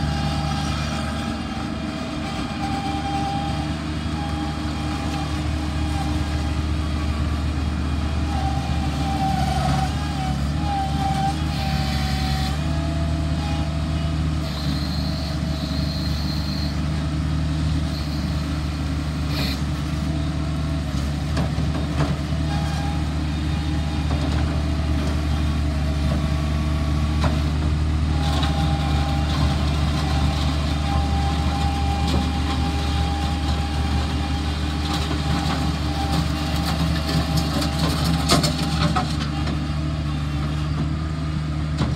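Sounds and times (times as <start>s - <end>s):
hydraulic whine: 0.0s - 17.0s, 17.8s - 20.2s
diesel engine running: 0.0s - 41.9s.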